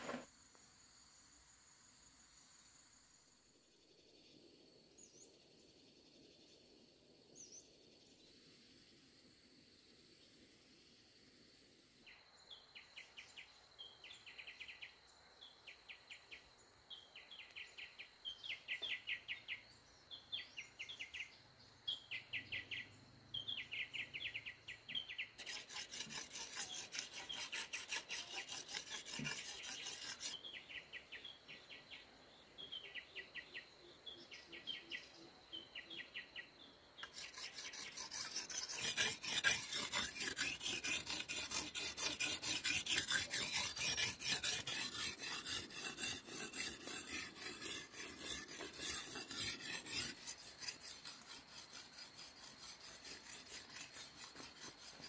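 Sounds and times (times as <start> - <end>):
blade sharpened on stone: 25.4 - 30.4, 37.0 - 55.0.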